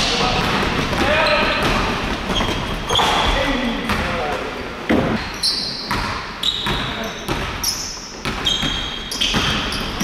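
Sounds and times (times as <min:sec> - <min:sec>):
sneakers squeaking on court: 0:00.3 - 0:04.1, 0:05.0 - 0:10.0
basketball bouncing on hardwood floor: 0:08.2 - 0:10.0.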